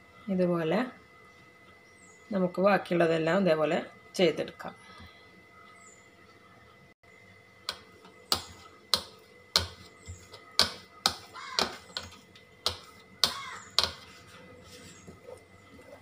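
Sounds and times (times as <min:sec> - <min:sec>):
rolling pin clacking on stone worktop: 0:07.7 - 0:14.1.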